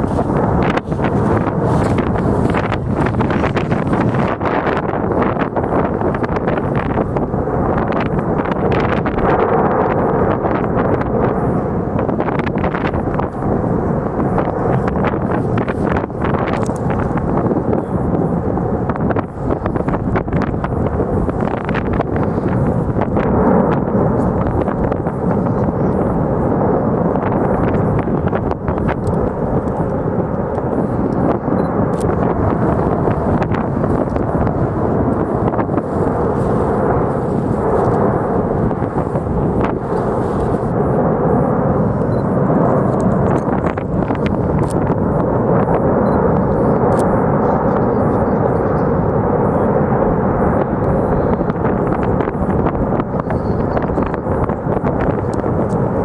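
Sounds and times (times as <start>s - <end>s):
faint sharp crackles: 0.0s - 4.7s, 31.9s - 40.7s
lava fountain rushing rumble: 0.0s - 56.0s.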